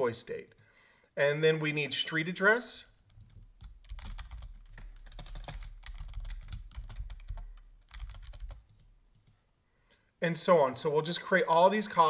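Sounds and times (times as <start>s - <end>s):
keyboard typing: 3.0s - 9.4s.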